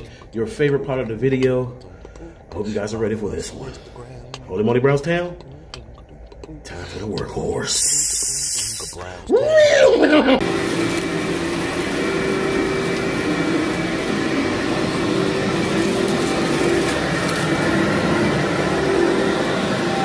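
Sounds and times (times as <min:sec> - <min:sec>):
vacuum cleaner running on carpet: 0:10.3 - 0:20.0.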